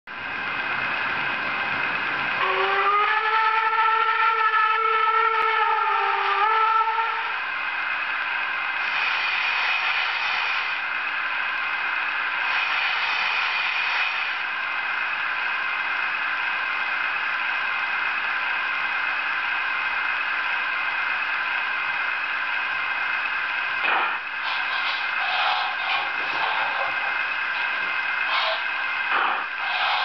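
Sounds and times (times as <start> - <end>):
steam whistle: 2.4 - 7.4, 27.6 - 30.0
steam hissing: 8.7 - 11.4, 12.3 - 14.5, 23.5 - 30.0.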